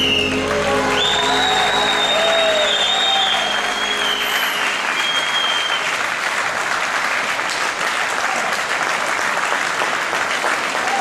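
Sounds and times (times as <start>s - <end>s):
music: 0.0s - 5.3s
audience applauding: 0.0s - 11.0s.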